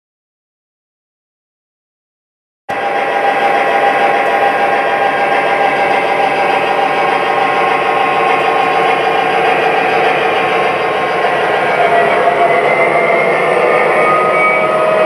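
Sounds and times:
model train diesel engine hum: 2.7s - 15.0s.

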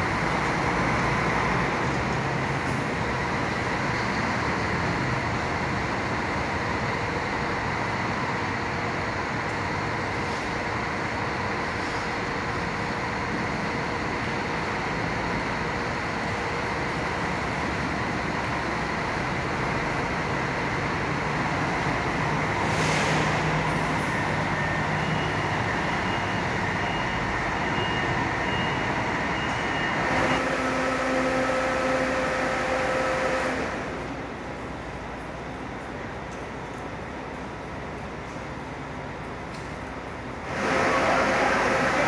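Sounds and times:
bus engines running: 0.0s - 42.0s
air brake hiss: 22.6s - 23.6s.

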